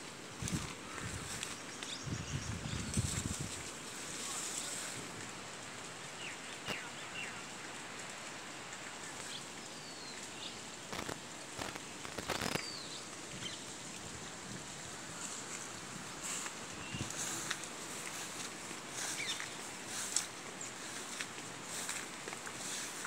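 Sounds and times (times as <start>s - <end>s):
running water rushing: 0.0s - 23.0s.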